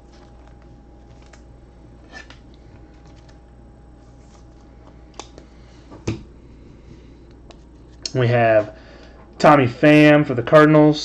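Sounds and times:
card clicks and rustles: 0.0s - 1.5s, 2.1s - 3.5s, 4.1s - 5.6s
steady low hum: 0.0s - 11.0s.

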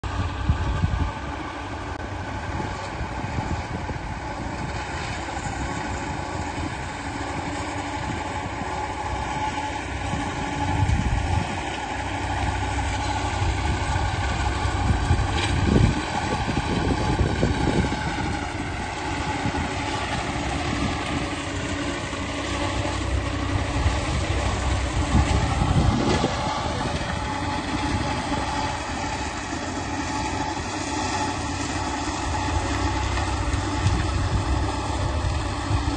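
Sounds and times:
tractor diesel engine running: 0.0s - 35.9s.

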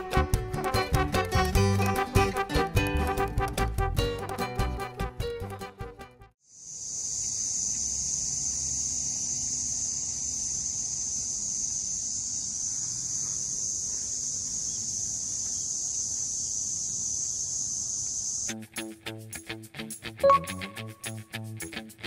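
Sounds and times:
insects shrilling: 6.5s - 18.6s.

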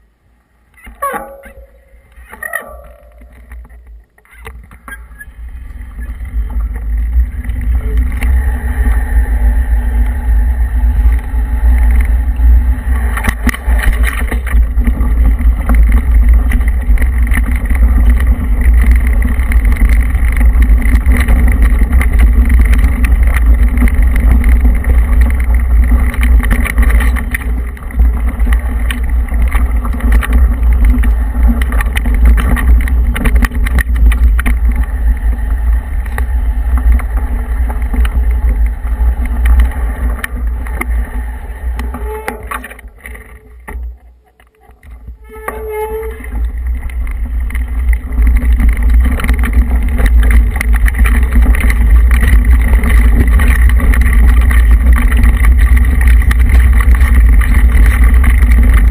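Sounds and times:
tyres rolling over gravel: 0.7s - 58.9s
wind buffeting microphone: 5.2s - 45.3s.

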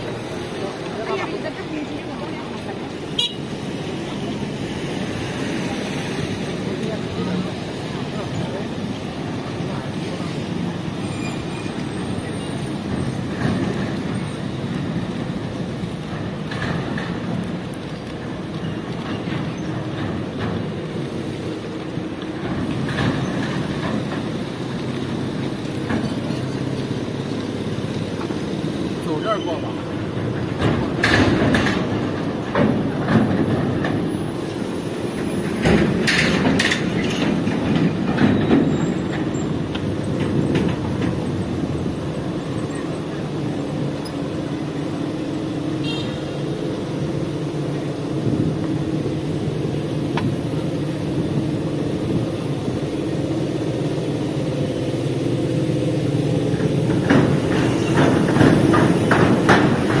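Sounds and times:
passing vehicles rumbling: 0.0s - 60.0s
clicks and clatter: 30.2s - 34.1s, 35.2s - 41.5s.

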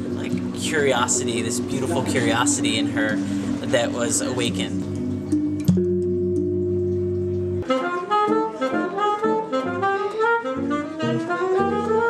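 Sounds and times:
saxophone playing jazz: 0.0s - 4.8s, 7.6s - 12.0s
electric guitar playing jazz: 0.0s - 12.0s.

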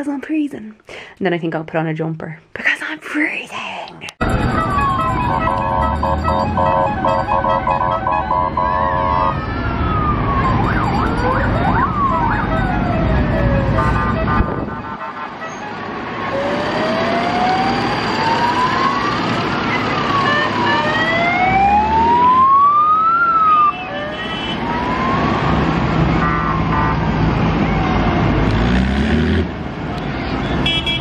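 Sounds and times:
tractor engines rumbling: 4.1s - 31.0s
wailing siren: 4.2s - 28.4s.

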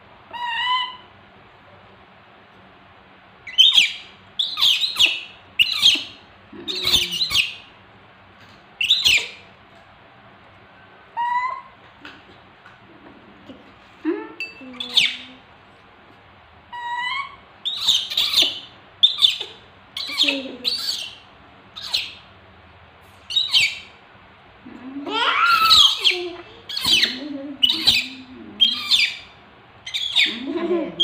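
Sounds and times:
baby monkeys squealing: 0.3s - 1.1s, 3.5s - 7.6s, 8.8s - 9.4s, 11.2s - 11.7s, 16.8s - 21.2s, 21.8s - 22.2s, 23.3s - 23.9s, 25.1s - 30.7s.

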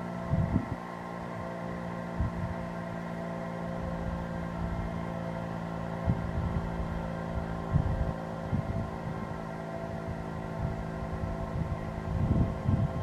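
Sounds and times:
warning siren steady tone: 0.0s - 13.0s
wind buffeting microphone: 0.2s - 0.9s, 2.1s - 2.8s, 5.8s - 13.0s.

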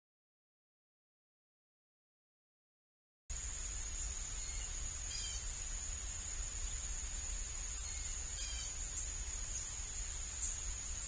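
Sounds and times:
high-pitched insect trill: 3.3s - 11.0s
small bird chirps: 4.0s - 5.8s, 7.6s - 11.0s.

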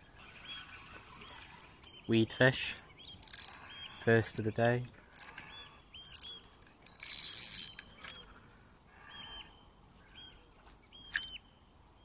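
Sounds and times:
fishing reel clicks: 3.2s - 3.6s, 5.1s - 8.2s.

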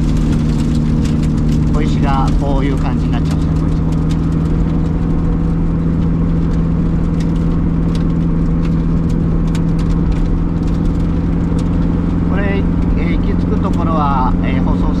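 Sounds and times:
car engine cruising: 0.0s - 15.0s
tyre and road noise: 0.0s - 15.0s.

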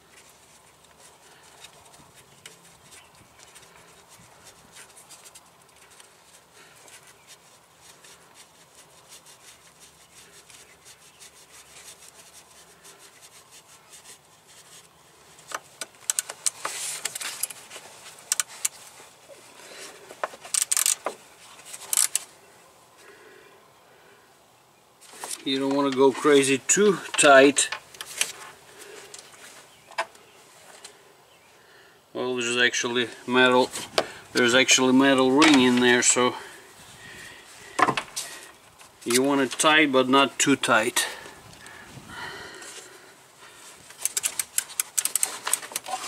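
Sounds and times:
gloved hands rubbing hoses: 0.0s - 22.3s, 32.7s - 46.0s
sharp metallic clicks and rattles: 15.5s - 17.6s, 20.3s - 22.3s, 43.8s - 46.0s.

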